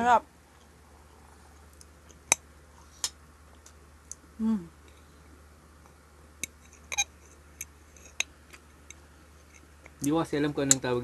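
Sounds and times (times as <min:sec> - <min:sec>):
person humming: 0:04.4 - 0:04.8.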